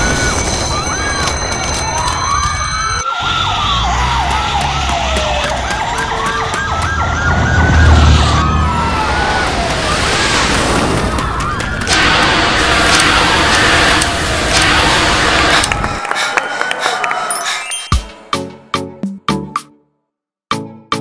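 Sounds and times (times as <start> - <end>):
fire engine siren wailing: 0.0 - 17.4
low rumble: 7.0 - 16.0.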